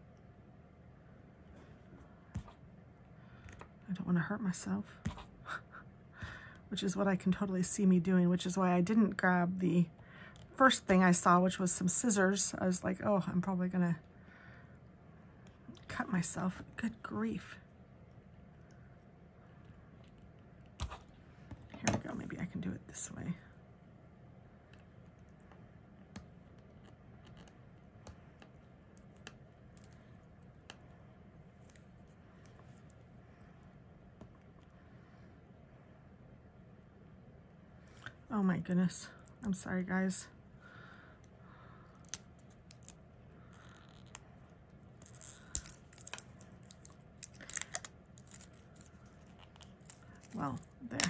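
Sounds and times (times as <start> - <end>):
fingernails peeling plastic wrapping: 45.0 - 50.9.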